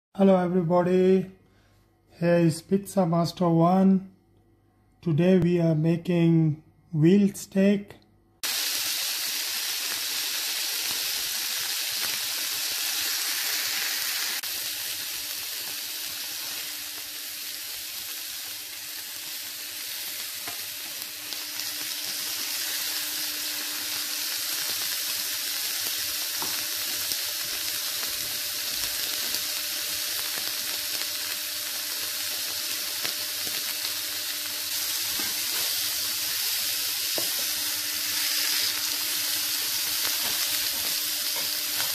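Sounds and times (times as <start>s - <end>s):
meat sizzling in oil: 8.4s - 41.9s.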